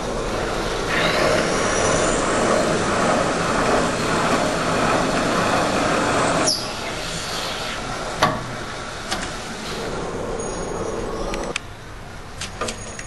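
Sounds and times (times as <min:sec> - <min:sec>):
machine spindle whine: 0:00.0 - 0:11.6
reamer cutting metal: 0:00.4 - 0:08.2.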